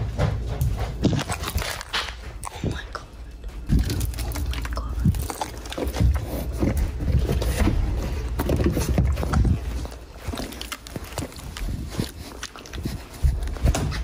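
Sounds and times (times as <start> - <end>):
muffled footsteps on concrete: 0.0 - 3.9.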